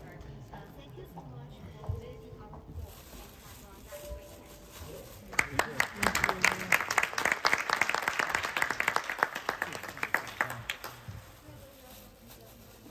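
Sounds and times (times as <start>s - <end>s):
small group applauding: 5.3s - 11.2s.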